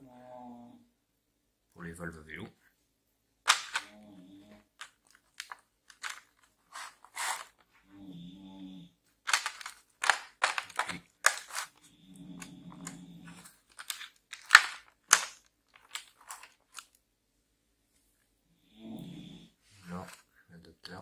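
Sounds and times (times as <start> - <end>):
plastic blister tray crackling: 3.5 - 3.9, 4.7 - 7.6, 9.3 - 17.0.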